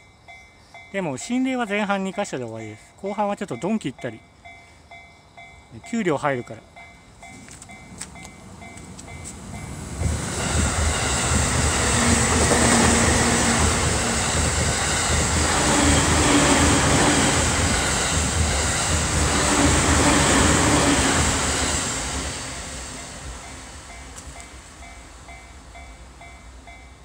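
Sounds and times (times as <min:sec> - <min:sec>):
train passing: 0:00.0 - 0:27.0
wheels beating on rails: 0:07.2 - 0:27.0.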